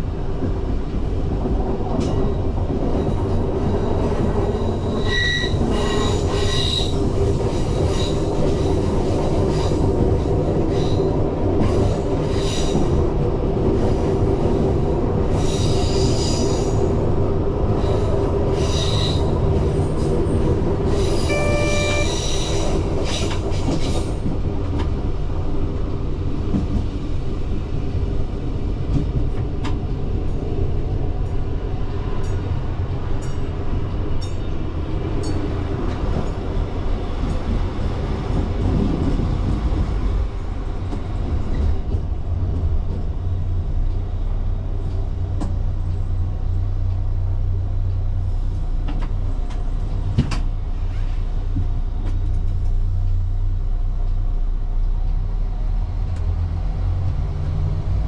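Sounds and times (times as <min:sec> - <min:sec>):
train engine and running gear rumbling: 0:00.0 - 0:58.0
short pitched tone: 0:21.3 - 0:22.2.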